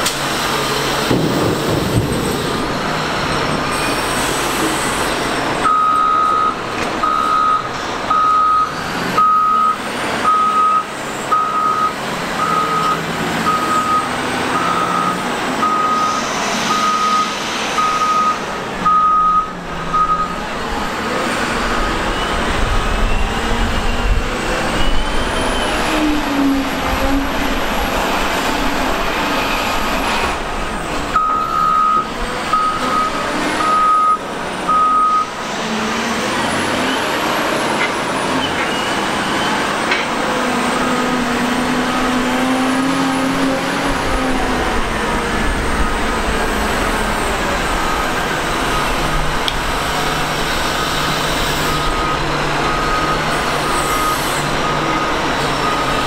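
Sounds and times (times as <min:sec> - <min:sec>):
wheel loader working: 0:00.0 - 0:56.0
reversing alarm beeping: 0:05.6 - 0:20.4, 0:31.2 - 0:35.4, 0:50.8 - 0:56.0.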